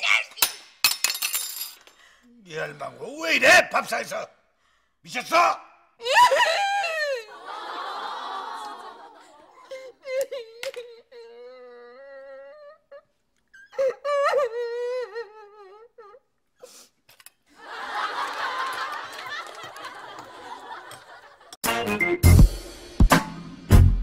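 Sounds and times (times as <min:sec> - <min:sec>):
woman wailing: 0:06.0 - 0:07.4, 0:09.6 - 0:16.2.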